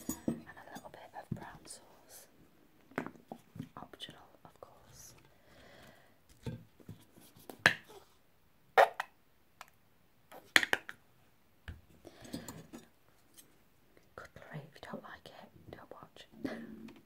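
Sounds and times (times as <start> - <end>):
bottle handling noise: 0.0 - 0.6.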